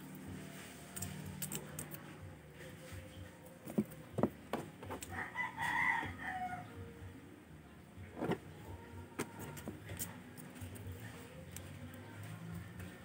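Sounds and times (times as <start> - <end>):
hand tools clicking on metal: 1.0 - 2.0
rooster crowing: 5.1 - 6.8.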